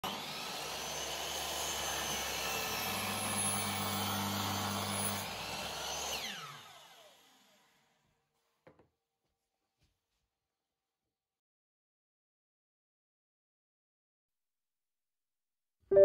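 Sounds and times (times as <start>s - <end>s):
saw spinning down whine: 0.0s - 7.6s
electric saw cutting log: 0.0s - 8.0s.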